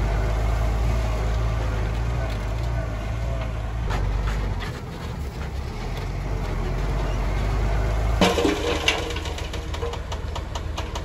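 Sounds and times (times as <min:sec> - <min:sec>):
diesel engine rumbling: 0:00.0 - 0:11.0
loud metal clatter: 0:08.2 - 0:11.0.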